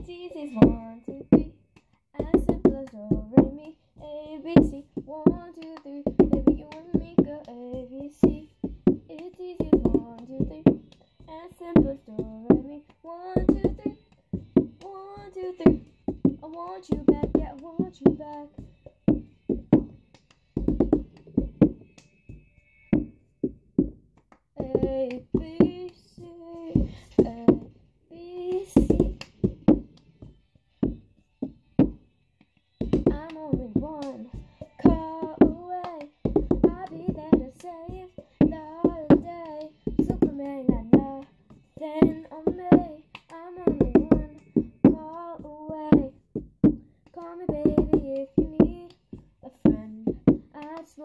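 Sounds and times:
girl singing: 0:00.0 - 0:20.0, 0:24.6 - 0:29.9, 0:32.8 - 0:51.0
rhythmic hand claps: 0:00.0 - 0:23.2, 0:23.8 - 0:27.7, 0:28.4 - 0:51.0
plastic cup tapping on book: 0:32.8 - 0:51.0.

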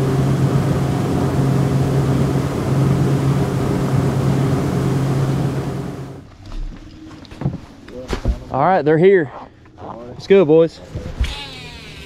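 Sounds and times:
boat motor droning: 0:00.0 - 0:06.3.

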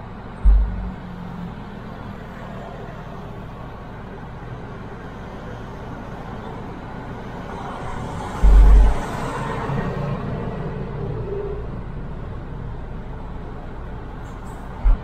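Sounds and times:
car road and engine noise: 0:00.0 - 0:15.0
short deep thump: 0:00.4 - 0:01.2, 0:08.4 - 0:09.0.

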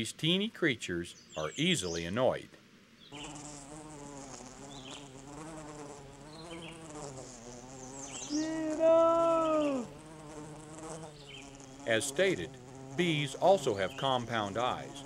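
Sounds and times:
bumblebee buzzing: 0:03.1 - 0:15.0.

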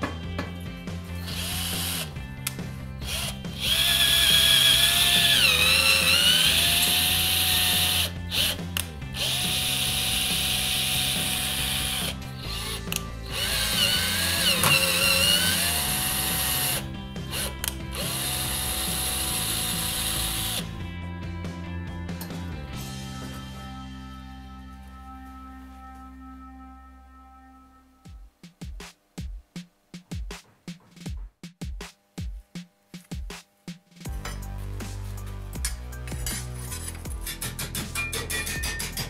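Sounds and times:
background music: 0:00.0 - 0:39.0
cordless drill drilling metal: 0:01.2 - 0:02.1, 0:03.0 - 0:20.7.

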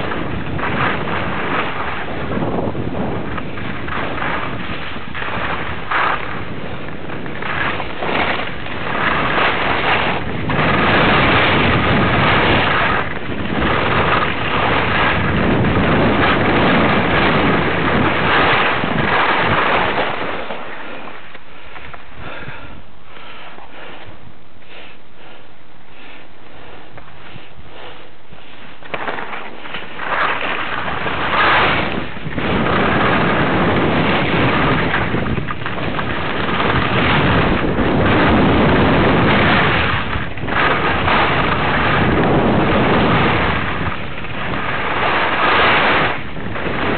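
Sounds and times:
skis scraping over snow: 0:00.0 - 0:46.9
wind rushing over microphone: 0:00.0 - 0:46.9.

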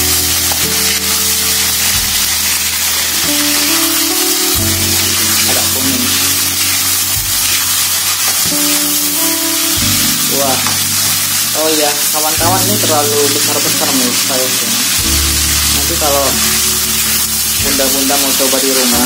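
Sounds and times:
background music of held notes: 0:00.0 - 0:19.0
chicken sizzling in oil: 0:00.0 - 0:19.0.

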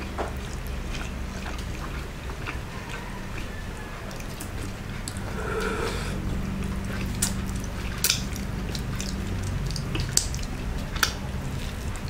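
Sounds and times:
person chewing wetly: 0:00.2 - 0:12.0
lip smacks: 0:04.1 - 0:11.2
low hum: 0:04.8 - 0:07.8
finger sucked clean: 0:05.1 - 0:06.2.

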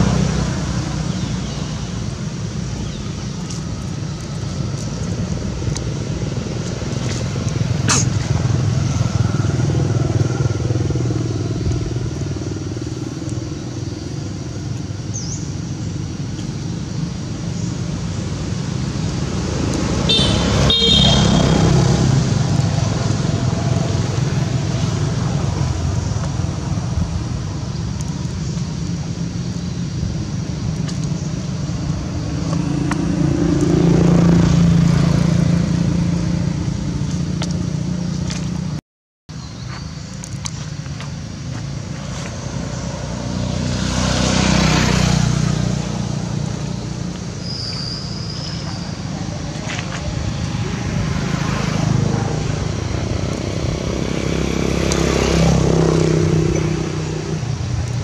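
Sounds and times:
vehicle engines passing: 0:00.0 - 0:58.0
car horn toot: 0:20.1 - 0:21.7.

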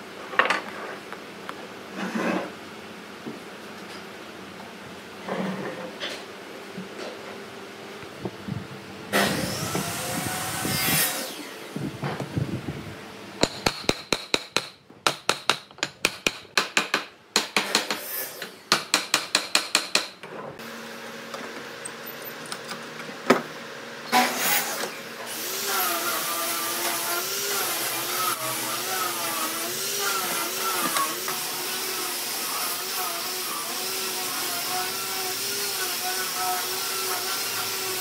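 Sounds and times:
power tool running: 0:09.1 - 0:12.5, 0:24.1 - 0:38.0.

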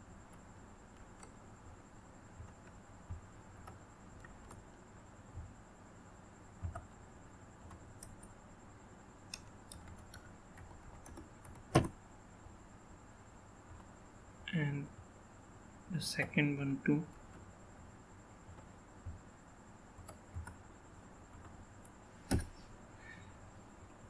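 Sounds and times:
keyboard and mouse clicks: 0:09.3 - 0:12.0, 0:21.4 - 0:22.5.

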